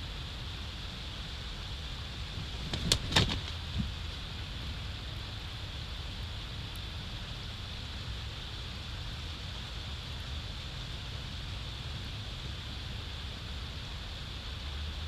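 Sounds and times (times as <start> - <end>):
steady hiss: 0.0 - 15.0
wing flaps: 2.3 - 4.0
knocks on branches: 2.5 - 4.0.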